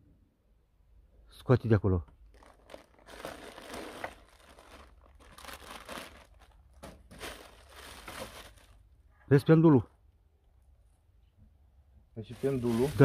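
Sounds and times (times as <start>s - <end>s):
packing material crumpling: 2.2s - 8.9s, 12.3s - 13.0s.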